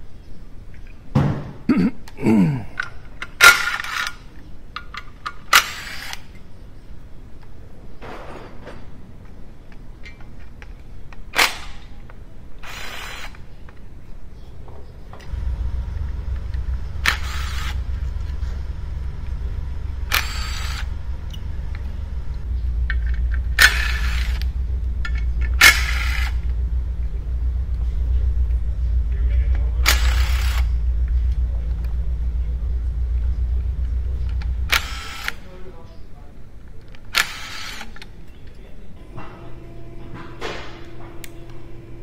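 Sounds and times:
steady low rumble: 15.2s - 37.2s, 38.7s - 42.0s.

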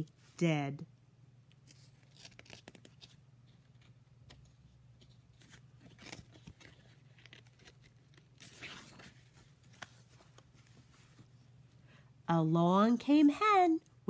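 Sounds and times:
book page turning: 1.5s - 11.3s
paper rustling: 1.6s - 11.3s.

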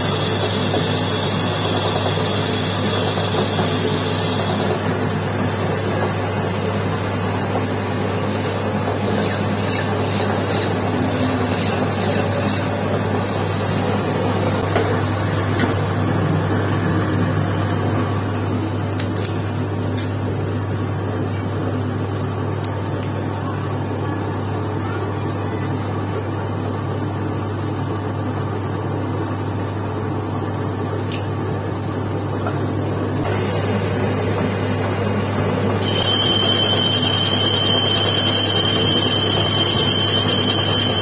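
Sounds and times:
metal lathe motor humming: 0.0s - 18.4s, 35.6s - 41.0s.

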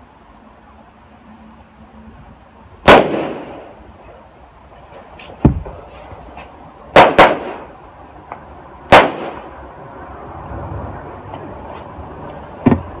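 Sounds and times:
firecrackers banging: 2.8s - 3.8s, 6.9s - 7.8s, 8.9s - 9.6s.

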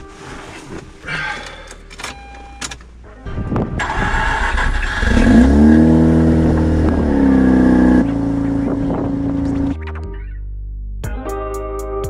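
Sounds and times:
rotary engine starting and idling: 3.8s - 9.8s.

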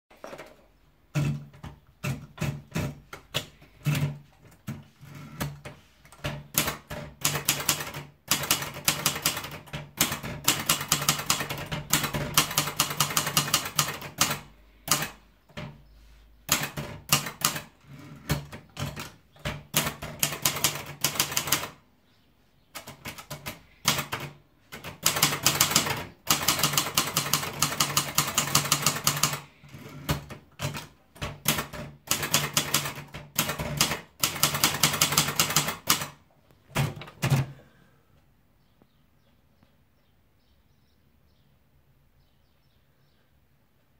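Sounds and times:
typewriter keys clacking: 1.2s - 15.2s, 16.5s - 21.8s, 22.8s - 37.5s.

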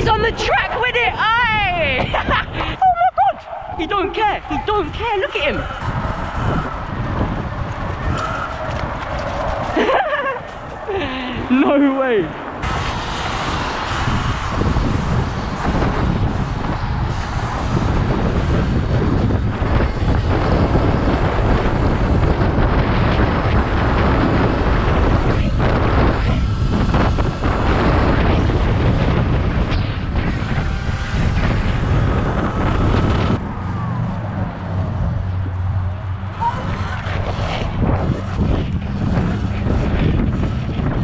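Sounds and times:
wind rushing over microphone: 0.0s - 41.0s
tyre noise: 12.3s - 41.0s.

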